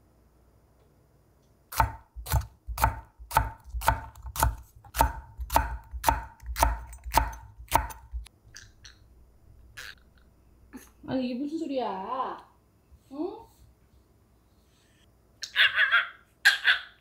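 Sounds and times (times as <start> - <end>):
knife chopping on wooden board: 1.7 - 8.3.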